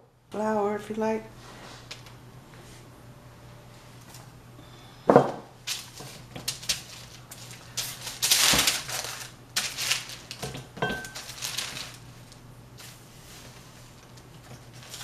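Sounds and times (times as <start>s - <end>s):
parchment paper crinkling: 5.7s - 15.0s.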